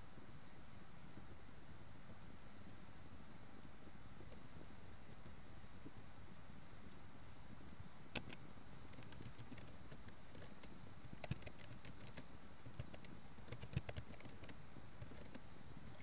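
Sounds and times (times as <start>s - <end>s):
steady background hiss: 0.0s - 16.0s
computer keyboard typing: 8.2s - 15.4s.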